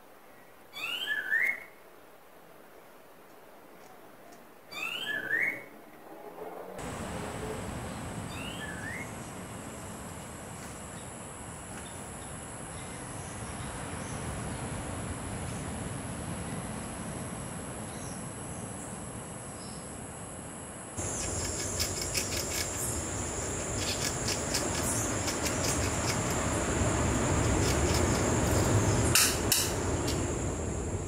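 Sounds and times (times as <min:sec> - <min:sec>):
insect chorus buzzing: 0:06.8 - 0:31.0.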